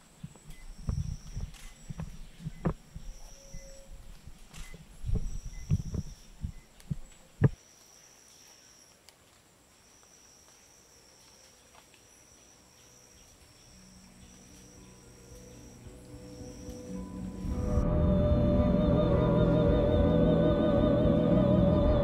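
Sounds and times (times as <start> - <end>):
insect trilling: 9.8 - 17.8
soundtrack music: 15.9 - 22.0.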